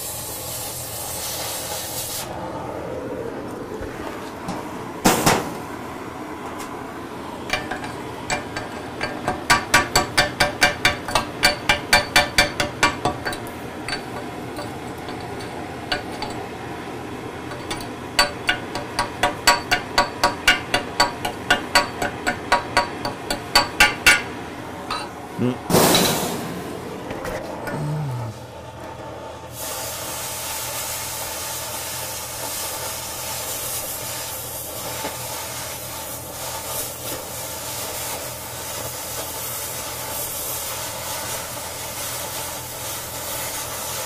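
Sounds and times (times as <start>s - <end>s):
cutting torch hissing: 0.0s - 2.5s, 29.5s - 44.0s.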